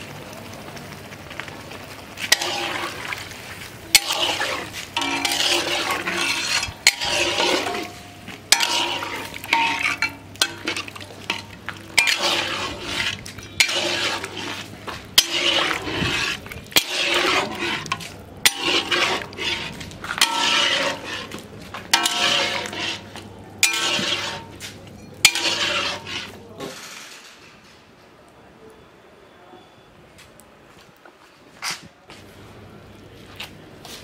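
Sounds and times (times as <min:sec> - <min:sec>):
metal spatula scraping pan: 0:02.2 - 0:27.4.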